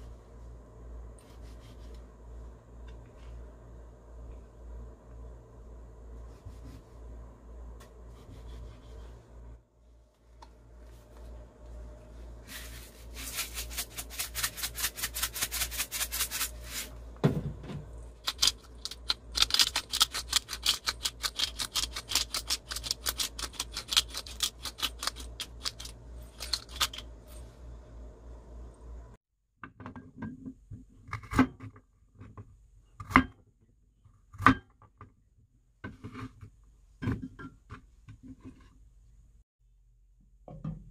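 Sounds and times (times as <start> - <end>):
spice mill grinding: 12.5 - 16.9, 18.2 - 27.1.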